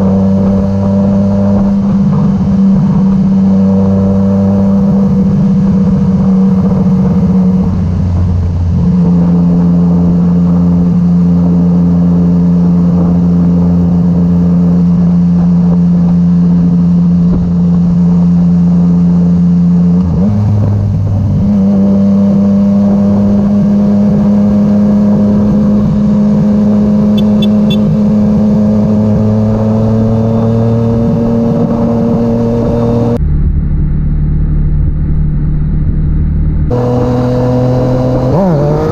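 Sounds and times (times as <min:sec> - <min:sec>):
motorcycle engine running: 0:00.0 - 0:38.9
wind noise: 0:00.0 - 0:38.9.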